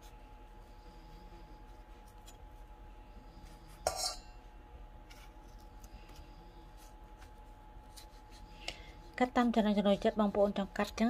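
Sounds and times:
knife clinking on metal bowl: 0:03.9 - 0:04.3.

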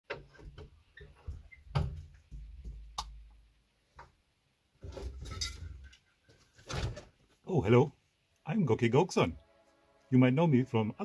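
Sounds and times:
footsteps and knocks: 0:00.1 - 0:03.3.

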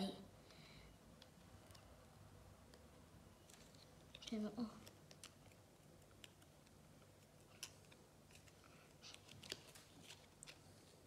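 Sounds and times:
peeling sticker backing crackles: 0:03.4 - 0:11.0.

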